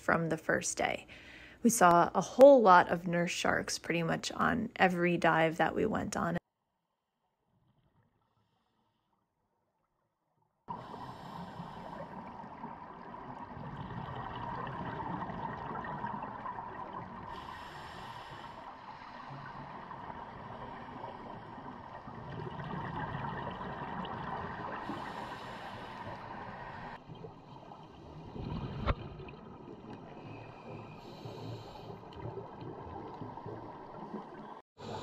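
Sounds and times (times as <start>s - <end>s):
diver breathing through regulator: 10.7s - 12.4s, 17.3s - 20.0s, 24.8s - 27.0s, 30.2s - 32.4s
exhaled bubbles gurgling: 10.7s - 35.0s.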